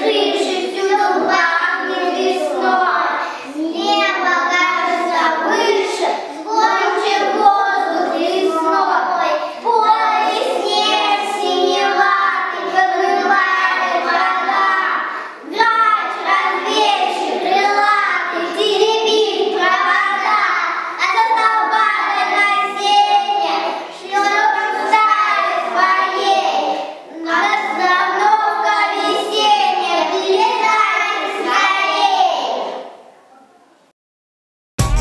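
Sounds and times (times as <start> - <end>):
children singing: 0.0 - 33.0.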